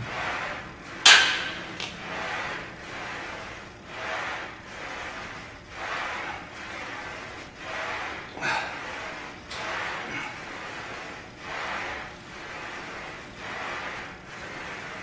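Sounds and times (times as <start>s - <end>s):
barbell clanking on metal rack: 1.1s - 1.7s
man breathing hard: 8.3s - 9.3s.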